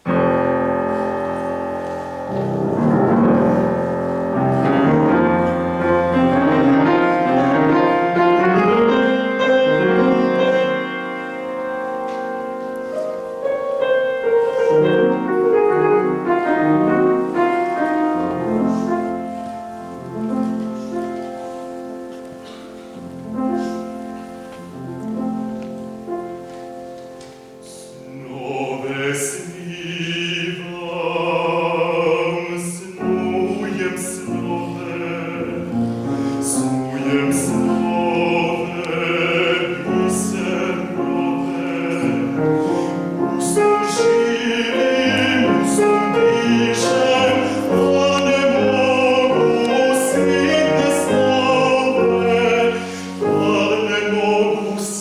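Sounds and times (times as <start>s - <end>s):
grand piano playing: 0.0s - 55.0s
baritone voice singing: 27.7s - 55.0s.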